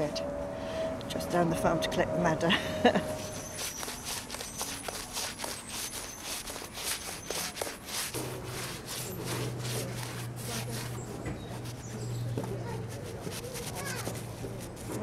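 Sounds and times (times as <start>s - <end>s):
paintbrush scrubbing on brick: 3.0s - 15.0s.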